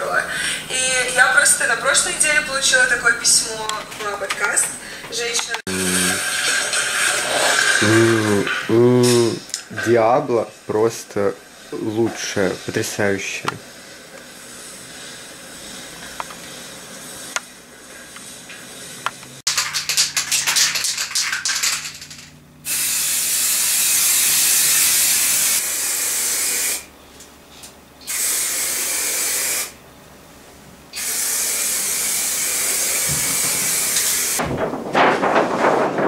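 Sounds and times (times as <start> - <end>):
spray paint can hissing: 5.7 - 9.2, 19.5 - 26.9, 28.0 - 29.8, 31.0 - 34.4.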